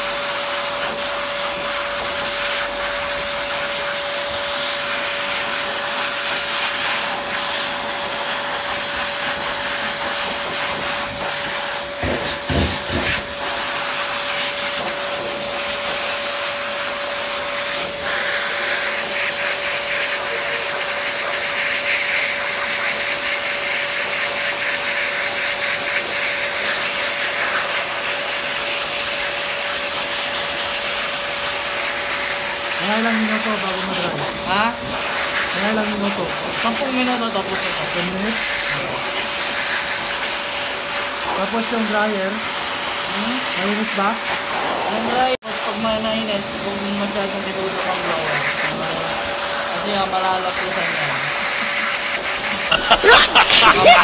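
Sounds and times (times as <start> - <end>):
electric blower rushing air: 0.0 - 23.2, 52.0 - 54.0.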